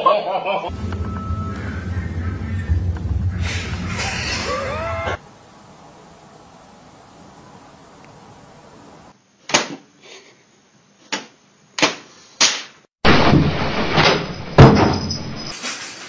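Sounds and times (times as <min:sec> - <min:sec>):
heavy bang: 0:13.0 - 0:15.2
loud clattering crash: 0:13.0 - 0:16.0.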